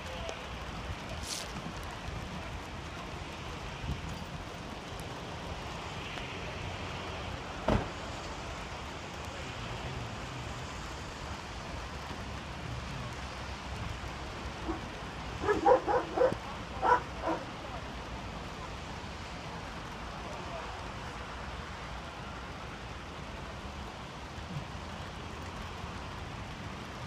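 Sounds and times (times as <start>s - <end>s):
vehicle and traffic noise: 0.0s - 27.0s
dog barking: 14.6s - 17.5s.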